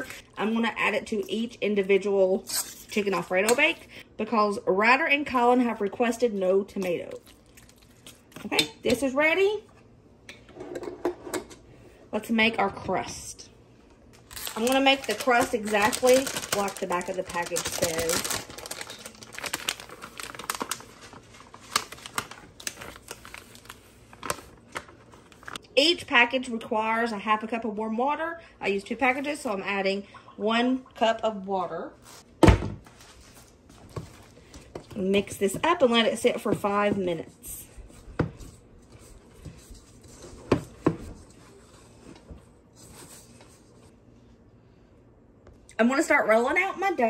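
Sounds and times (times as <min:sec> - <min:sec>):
paper packet crinkling: 0:14.2 - 0:25.6.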